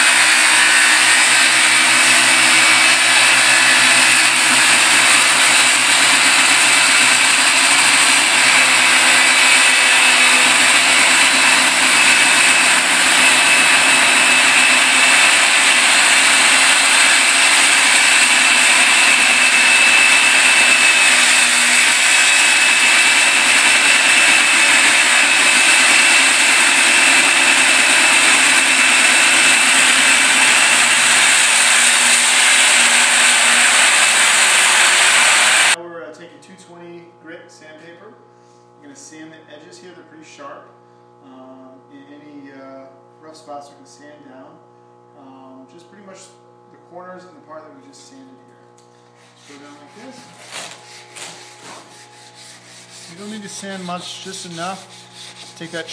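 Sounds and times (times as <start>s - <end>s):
circular saw cutting wood: 0.0s - 35.8s, 49.1s - 55.9s.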